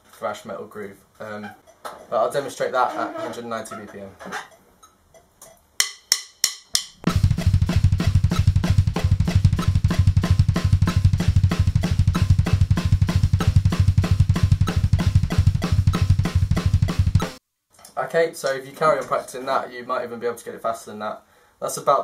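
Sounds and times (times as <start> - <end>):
drum kit playing metal groove: 5.8 - 17.4.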